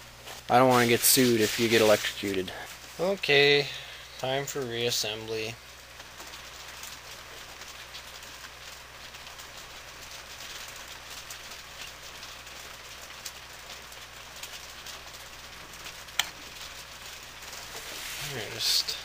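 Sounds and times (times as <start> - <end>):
steady rain falling: 0.0 - 19.0.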